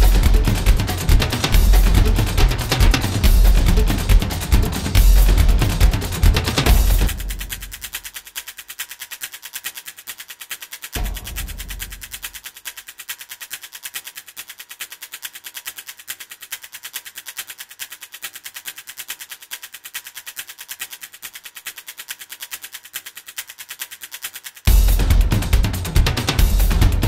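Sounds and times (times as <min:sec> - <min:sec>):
deep boom: 0:00.0 - 0:00.8, 0:01.6 - 0:05.9, 0:11.0 - 0:12.1
loud drum-heavy music: 0:00.0 - 0:07.9, 0:11.0 - 0:12.2, 0:24.7 - 0:27.0
rapid rattle of sharp hits: 0:00.0 - 0:16.7, 0:20.8 - 0:27.0.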